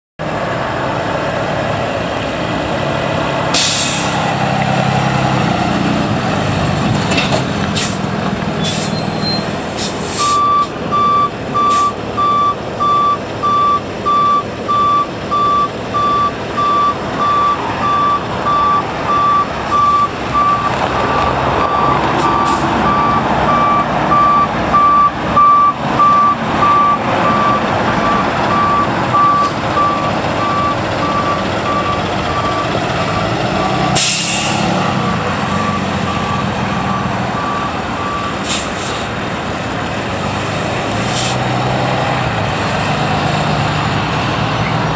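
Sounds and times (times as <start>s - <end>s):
diesel truck engine running: 0.2s - 44.9s
air brake hiss: 3.6s - 4.2s, 7.8s - 8.0s, 8.6s - 9.0s, 9.8s - 10.4s, 34.0s - 34.6s, 38.4s - 39.1s, 41.1s - 41.4s
reverse backup alarm beeping: 10.2s - 20.8s, 21.7s - 34.3s, 35.6s - 38.4s.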